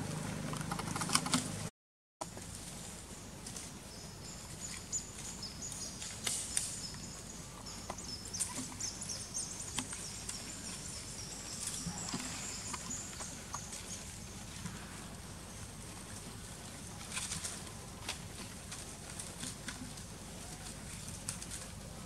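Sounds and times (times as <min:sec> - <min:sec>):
low steady rumble: 0:00.0 - 0:22.0
rustles in dry leaf litter: 0:02.3 - 0:22.0
birds chirping: 0:03.0 - 0:18.0.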